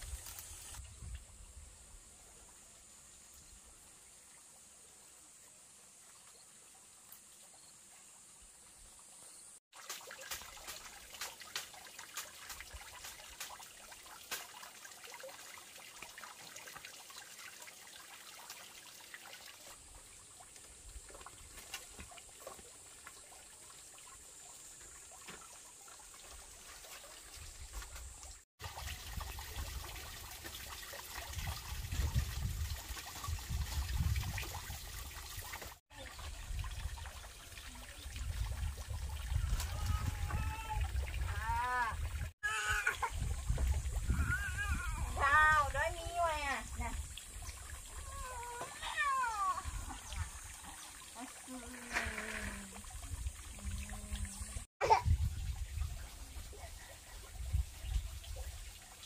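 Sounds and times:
water trickling into pond: 0:00.0 - 0:59.0.

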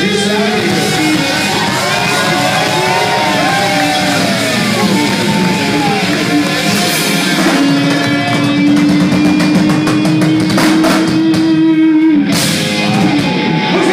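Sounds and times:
drum kit: 0:00.0 - 0:13.9
electric guitar: 0:00.0 - 0:13.9.

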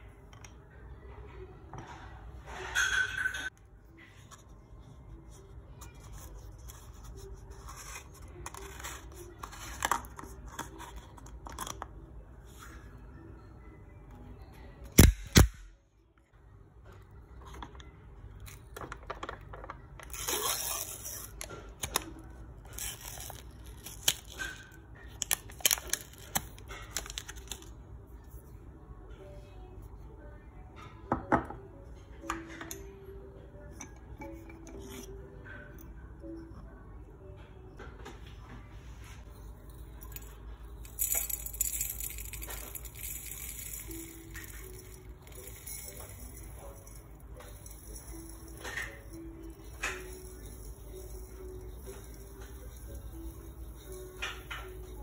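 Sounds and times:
coffee granules rustling into jar: 0:40.9 - 0:55.0.

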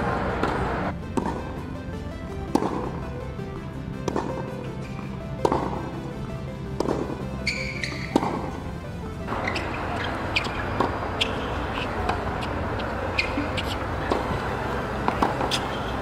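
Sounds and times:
quiet background music: 0:00.0 - 0:16.0
stadium crowd ambience: 0:00.0 - 0:16.0
tennis ball racket hits: 0:00.1 - 0:01.7, 0:02.4 - 0:03.3, 0:04.0 - 0:08.7, 0:09.3 - 0:16.0
shoes squeaking on court: 0:06.8 - 0:08.6, 0:09.3 - 0:16.0.

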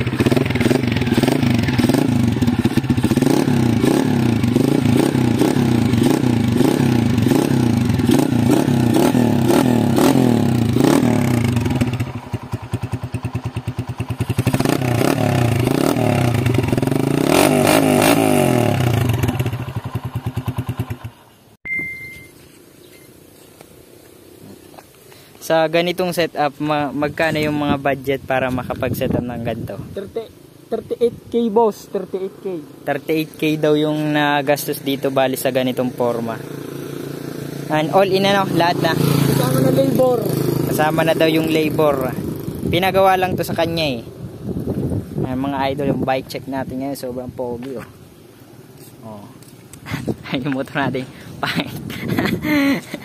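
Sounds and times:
motorcycle engine revving: 0:00.0 - 0:21.4, 0:31.9 - 0:44.9.

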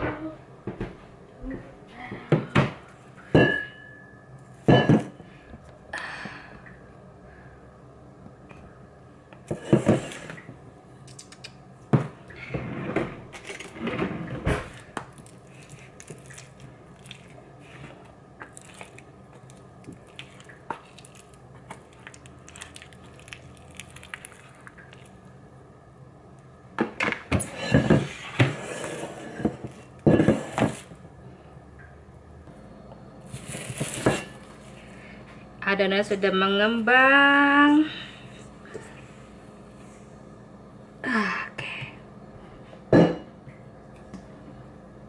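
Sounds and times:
plastic wrap crinkling: 0:18.4 - 0:25.2.

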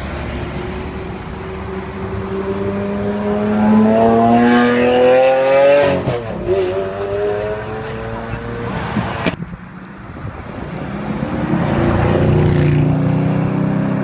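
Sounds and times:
sports car engine accelerating: 0:01.6 - 0:09.4.

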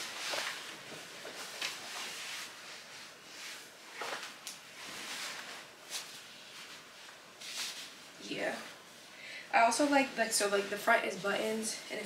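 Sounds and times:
jacket rustling: 0:00.0 - 0:09.0.

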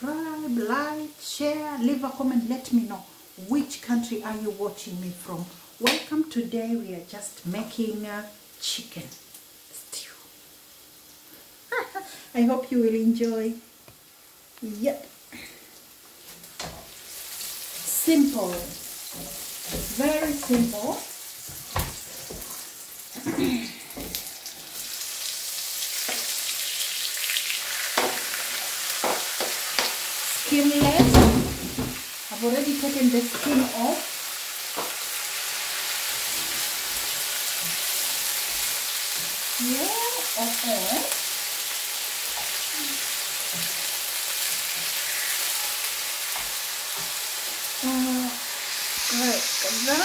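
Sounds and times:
onions sizzling in a frying pan: 0:00.0 - 0:50.0
wooden spatula scraping and tapping: 0:17.6 - 0:22.7, 0:43.5 - 0:47.2.

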